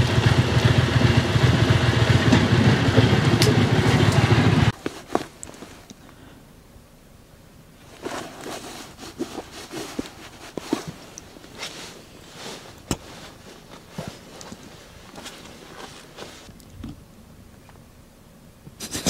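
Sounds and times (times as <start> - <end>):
handling rustling and scraping: 3.3 - 6.2, 7.8 - 17.0.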